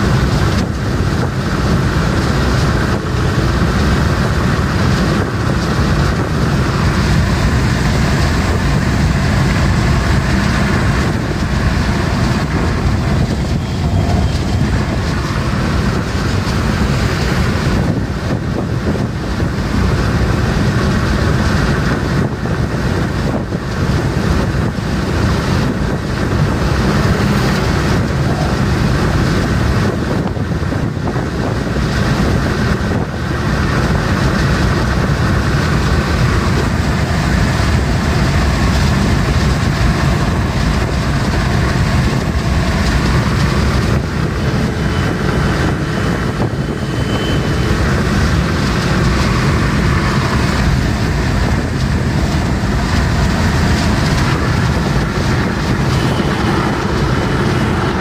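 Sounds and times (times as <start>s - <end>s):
wind and road noise in car: 0.0s - 58.0s.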